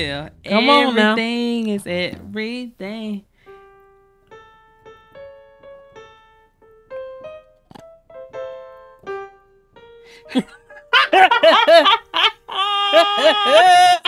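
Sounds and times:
keyboard piano single notes: 3.5s - 10.9s.

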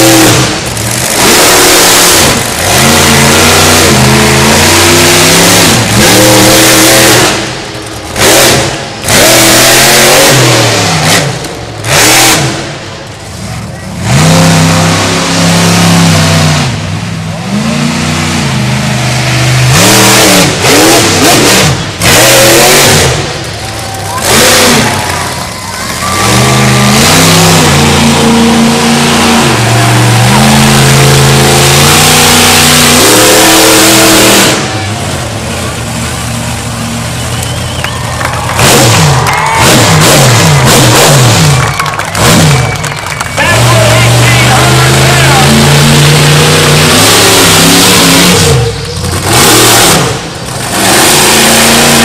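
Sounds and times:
monster truck engine revving: 0.0s - 52.0s.

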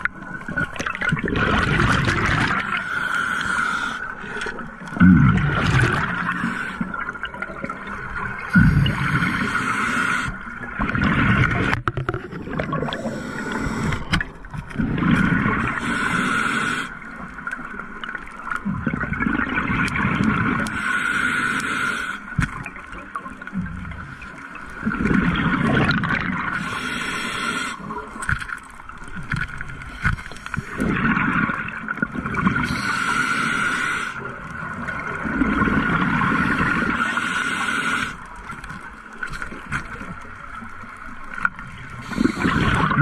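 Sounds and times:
gurgling exhaled bubbles: 0.0s - 3.5s, 4.2s - 16.1s, 17.3s - 20.8s, 22.5s - 26.8s, 29.2s - 33.2s, 34.3s - 37.2s, 38.4s - 43.0s
regulator hiss on inhale: 2.8s - 4.6s, 6.2s - 7.0s, 8.6s - 10.5s, 12.9s - 14.2s, 15.7s - 17.1s, 20.7s - 22.4s, 26.5s - 28.2s, 32.6s - 34.3s, 37.0s - 38.3s, 42.0s - 42.8s.

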